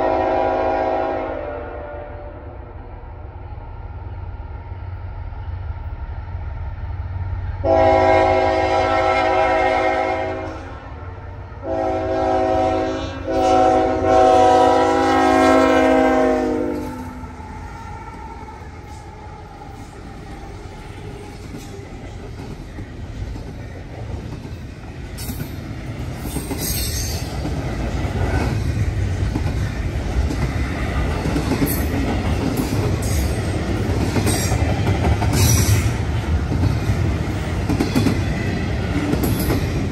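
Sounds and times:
locomotive air horn chord: 0.0s - 2.6s, 7.6s - 10.8s, 11.6s - 17.2s
train rumbling: 0.0s - 39.9s.

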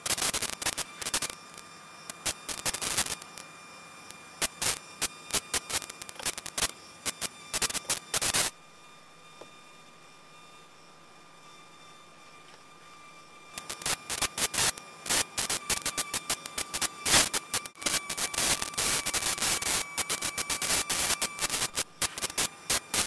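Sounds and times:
sharp crackling static: 0.0s - 8.6s, 13.5s - 23.0s
steady hiss: 0.0s - 8.6s, 13.6s - 23.0s
faint high hum: 0.0s - 23.0s.

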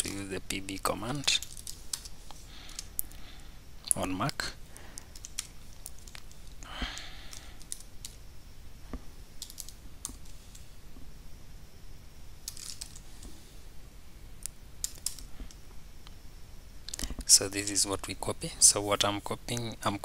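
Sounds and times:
keyboard typing: 5.1s - 6.3s.

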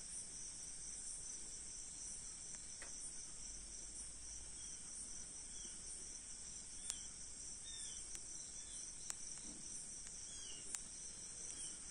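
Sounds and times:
crickets trilling: 0.0s - 11.9s
sharp clicks: 9.0s - 11.6s.

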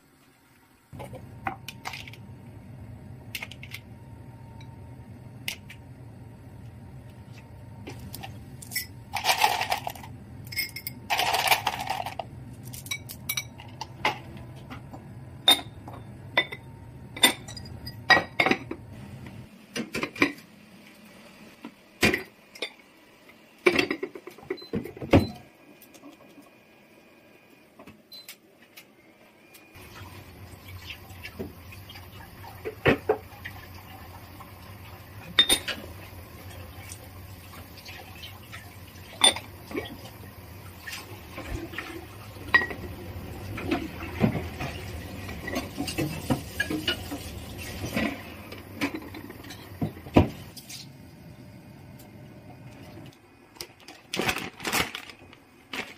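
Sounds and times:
steady low hum: 0.0s - 19.6s.

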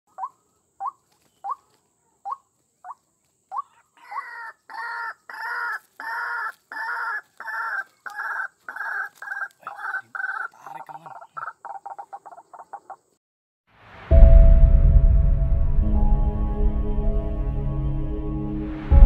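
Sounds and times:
waterhen calling: 0.1s - 13.0s.

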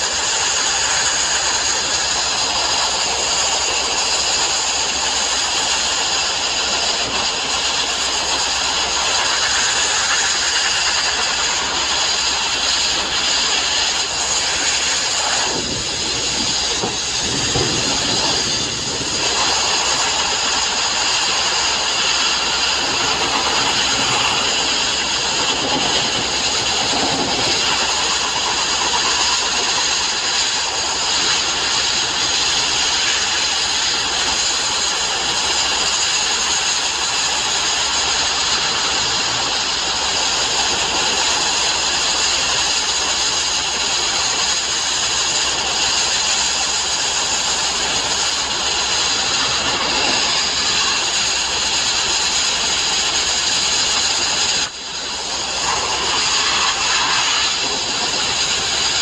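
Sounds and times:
abrasive blasting hiss: 0.0s - 59.0s.

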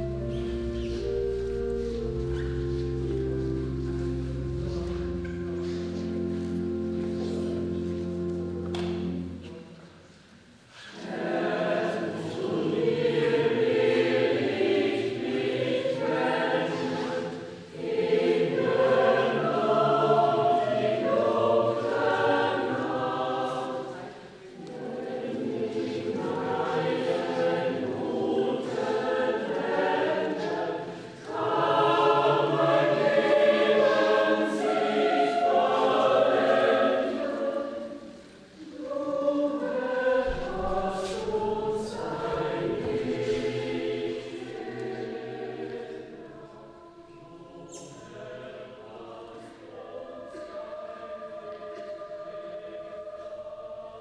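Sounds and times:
choir singing: 0.0s - 54.0s.

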